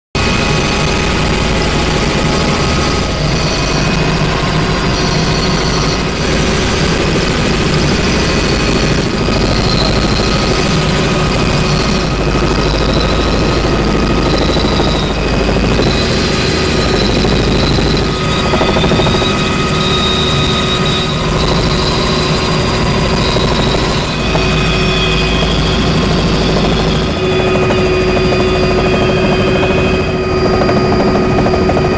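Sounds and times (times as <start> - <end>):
helicopter engine and rotor drone: 0.2 - 31.9
high wavering whine: 0.2 - 31.9.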